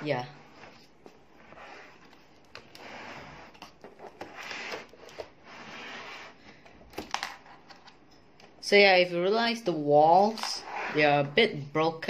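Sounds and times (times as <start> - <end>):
plastic scraping on table: 0.4 - 6.4.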